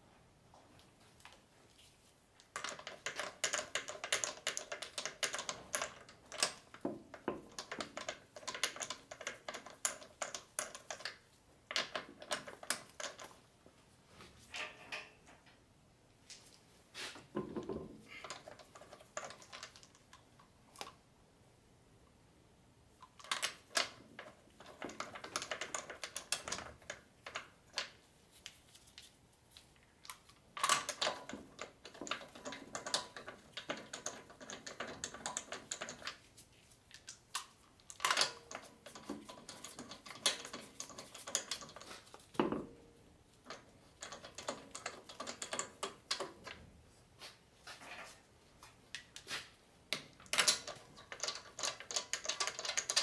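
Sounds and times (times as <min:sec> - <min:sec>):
bolts clicking and rattling: 0:02.4 - 0:13.4, 0:17.4 - 0:20.5, 0:23.0 - 0:28.0, 0:30.5 - 0:36.3, 0:36.9 - 0:42.8, 0:43.4 - 0:46.6, 0:49.9 - 0:53.0.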